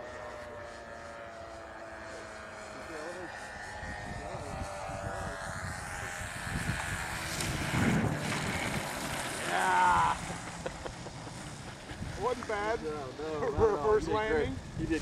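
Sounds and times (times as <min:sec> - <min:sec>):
model plane engine running: 0:00.0 - 0:15.0.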